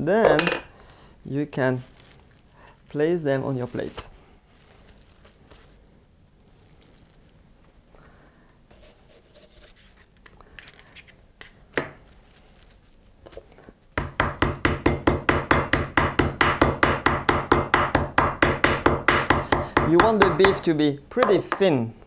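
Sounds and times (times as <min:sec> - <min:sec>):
faint rustling: 0:01.6 - 0:11.2
meat mallet pounding beef: 0:14.0 - 0:21.6.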